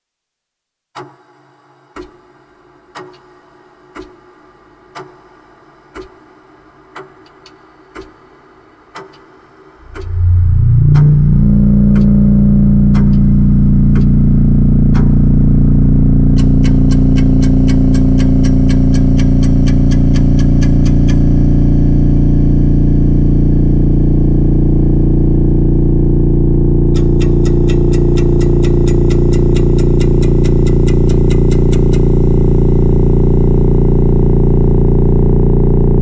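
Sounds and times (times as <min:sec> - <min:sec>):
loud low drone chord: 0:09.8 - 0:19.9.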